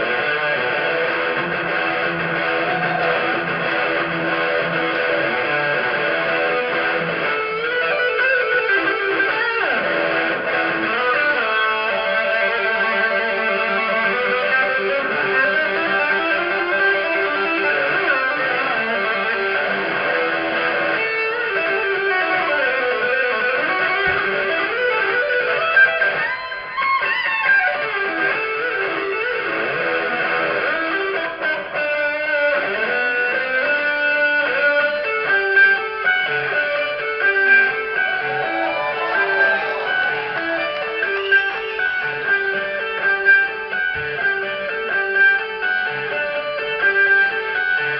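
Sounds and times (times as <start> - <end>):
electric guitar lead lines: 0.0 - 47.9.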